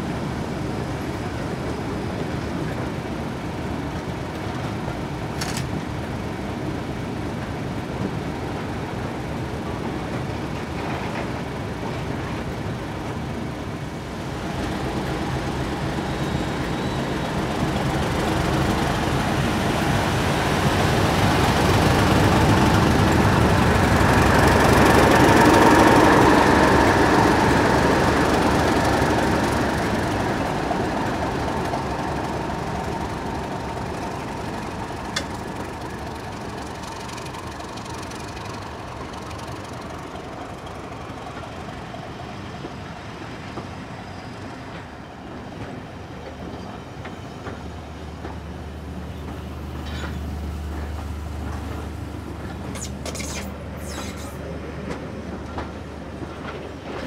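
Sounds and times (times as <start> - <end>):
train running on rails: 0.0 - 57.0.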